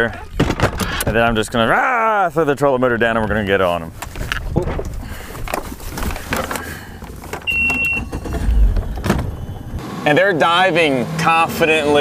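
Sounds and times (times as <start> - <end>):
short steady beep: 7.5 - 8.7
low rumble: 8.0 - 9.8.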